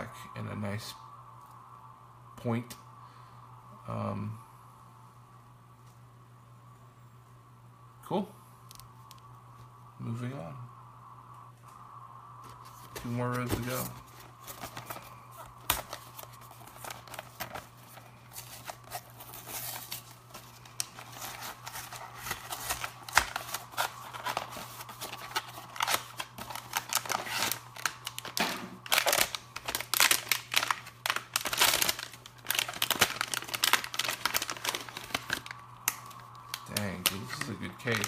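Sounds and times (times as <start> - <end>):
packaging rustling and tearing: 12.4 - 38.0.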